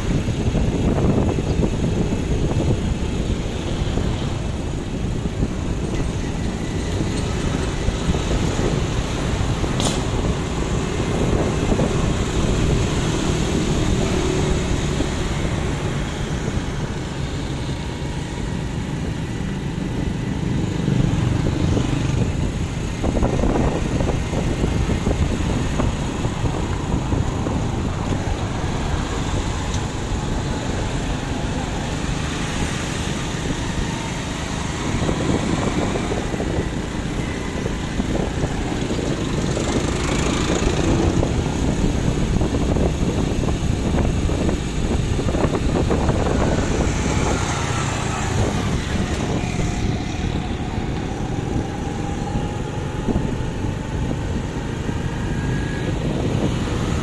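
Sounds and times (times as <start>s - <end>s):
motorcycles passing: 0.0s - 57.0s
traffic rumble: 0.0s - 57.0s.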